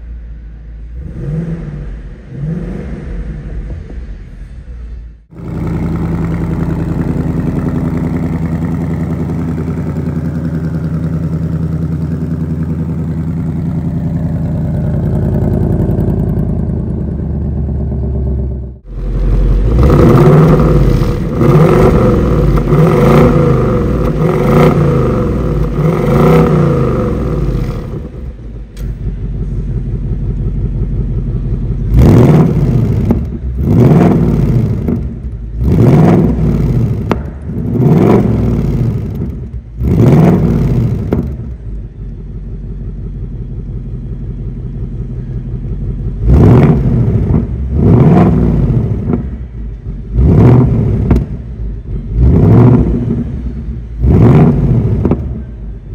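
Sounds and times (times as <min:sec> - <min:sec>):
car engine idling and revving: 0:00.0 - 0:55.9.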